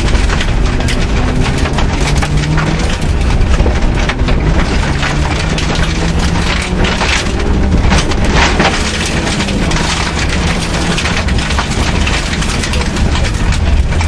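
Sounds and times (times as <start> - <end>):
gravel pinging against car underbody: 0.0 - 14.0
rally car engine accelerating: 0.0 - 14.0.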